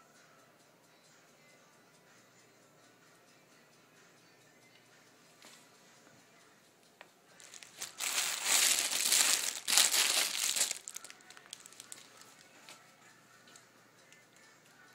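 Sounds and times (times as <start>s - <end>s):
candy wrappers crinkling: 7.4s - 12.8s.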